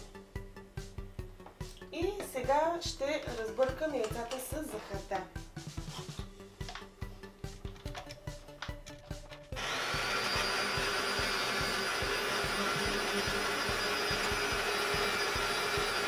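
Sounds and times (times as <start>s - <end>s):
background music beat: 0.0s - 16.0s
electric hand mixer whirring: 9.5s - 16.0s.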